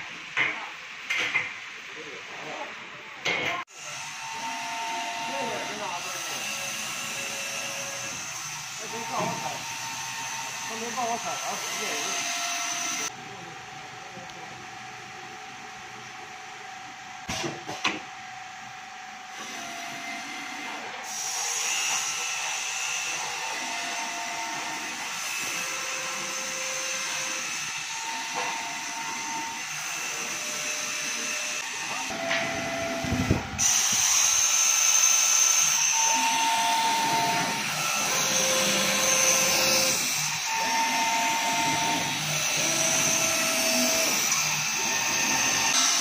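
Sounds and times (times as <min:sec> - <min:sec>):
cutting machine hiss: 0:03.7 - 0:13.1, 0:19.4 - 0:46.0
motor whines changing pitch: 0:25.6 - 0:46.0.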